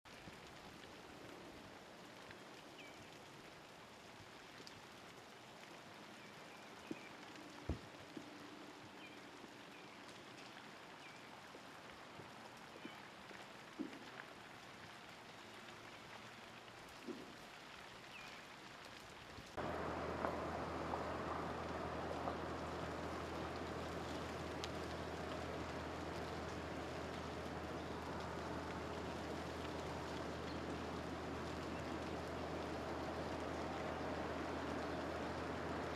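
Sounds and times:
ice ticking and dripping: 0.1s - 35.9s
soft steady hiss: 0.1s - 35.9s
steady rush with low hum: 19.6s - 35.9s.

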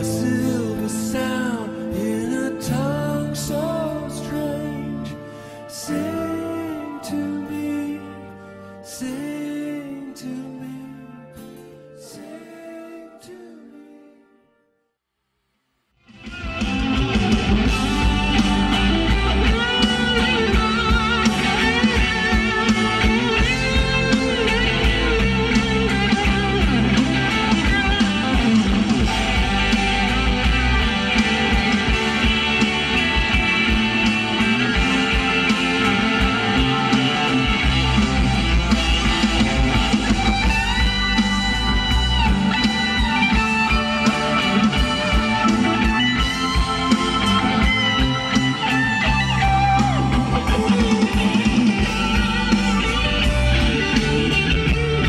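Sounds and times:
rock music through car speakers: 16.0s - 55.0s
strong steady bass: 16.1s - 55.0s.

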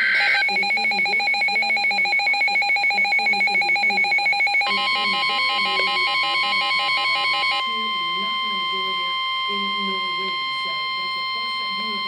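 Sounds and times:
pulsing electronic beeps: 0.0s - 7.9s.

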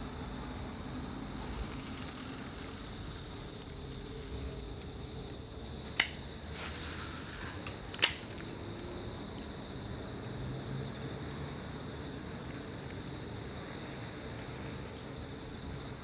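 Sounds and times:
sharp clicks: 5.9s - 6.2s, 7.6s - 8.6s
short high hiss: 5.9s - 8.2s.

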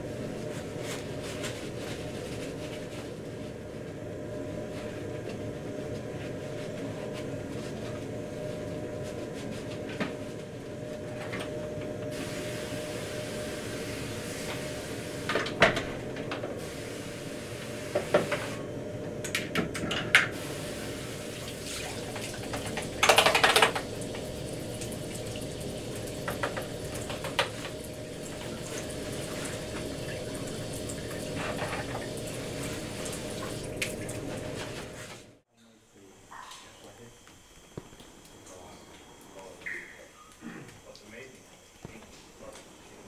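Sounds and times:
water running in sink: 20.4s - 35.1s.

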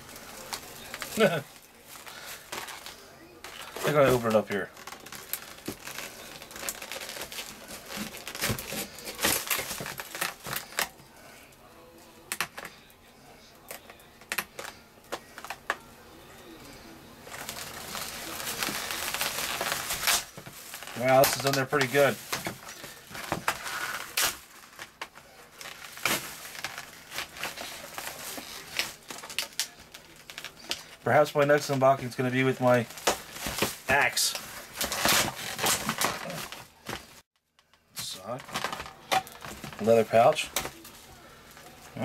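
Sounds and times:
plastic crinkling and cracking: 0.0s - 42.0s
knife cutting plastic packaging: 2.0s - 11.0s, 17.3s - 31.0s, 34.6s - 37.1s
knife cutting hard plastic: 5.1s - 11.0s.

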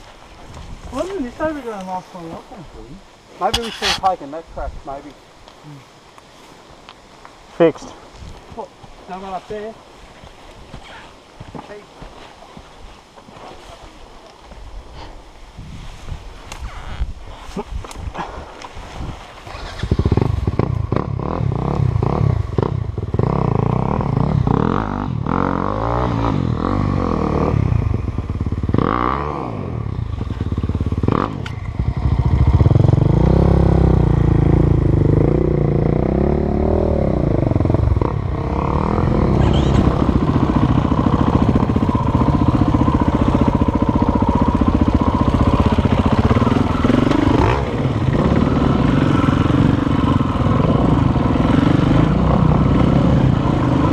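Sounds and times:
motorcycle engine revving: 19.4s - 53.9s.

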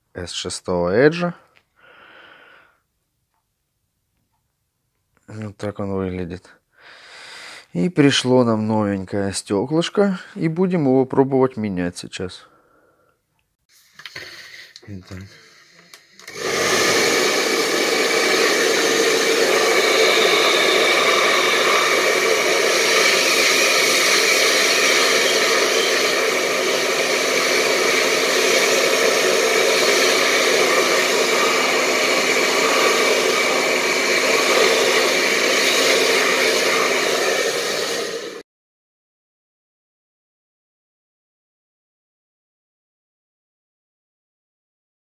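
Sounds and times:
hot-air blower rushing: 15.8s - 38.4s.

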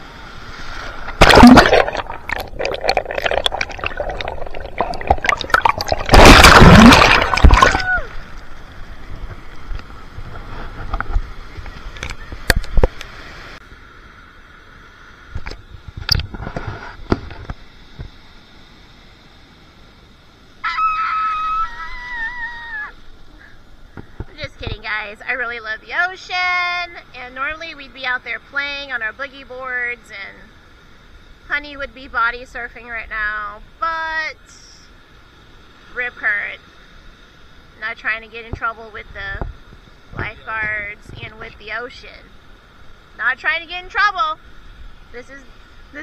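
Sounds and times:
ocean surf washing: 0.0s - 13.6s.

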